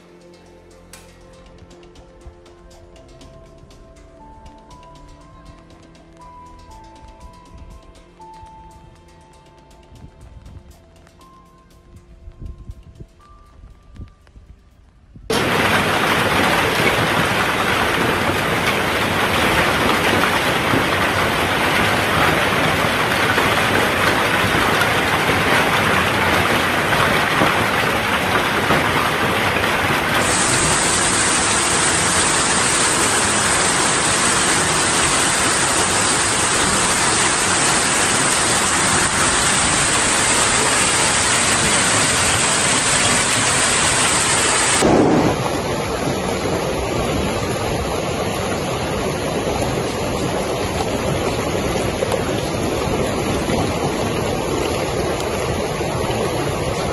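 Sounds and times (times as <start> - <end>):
hail and rain falling hard: 15.3 - 56.9.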